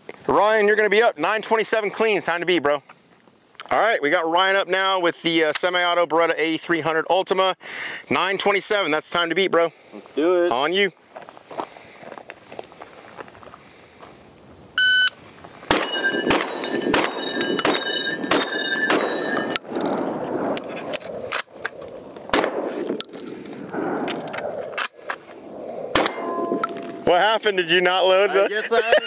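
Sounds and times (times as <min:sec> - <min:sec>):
shotgun shots: 0:15.7 - 0:19.5, 0:22.3 - 0:23.0, 0:25.9 - 0:27.1
steel targets ringing: 0:15.7 - 0:19.6, 0:26.0 - 0:27.3.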